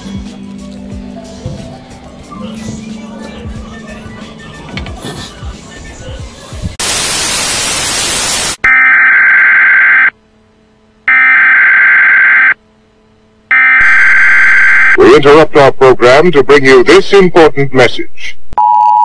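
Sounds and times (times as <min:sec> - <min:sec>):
tv static hiss: 0:05.7 - 0:10.1, 0:11.2 - 0:18.5
emergency alert tone blasts: 0:11.1 - 0:12.6, 0:13.5 - 0:15.0.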